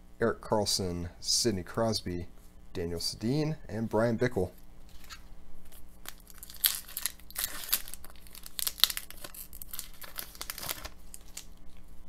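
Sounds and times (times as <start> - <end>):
plastic wrapper crinkling: 4.9 - 12.0.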